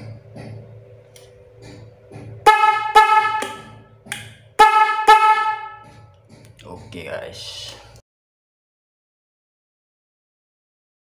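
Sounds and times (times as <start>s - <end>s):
horn honking low tone: 2.2s - 6.2s.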